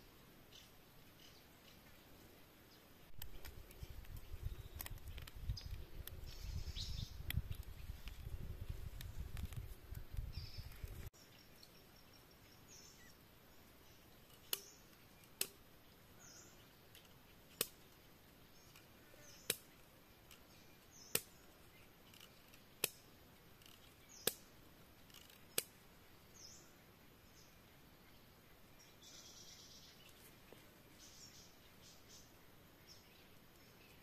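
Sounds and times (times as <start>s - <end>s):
bamboo snapping: 3.2s - 6.2s, 14.3s - 15.6s, 17.0s - 17.9s, 18.7s - 20.4s, 21.1s - 21.4s, 22.1s - 23.0s, 23.6s - 25.8s.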